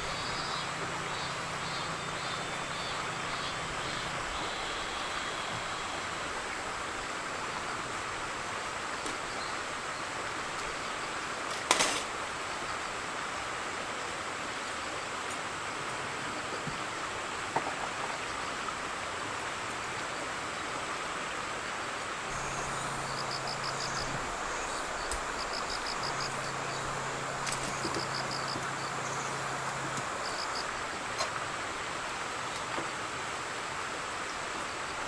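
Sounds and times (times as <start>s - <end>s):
insects chirping in pulsed trills: 0.0s - 7.8s, 22.3s - 31.0s
low steady hum: 0.0s - 11.2s, 22.3s - 35.0s
outdoor hiss: 0.0s - 35.0s.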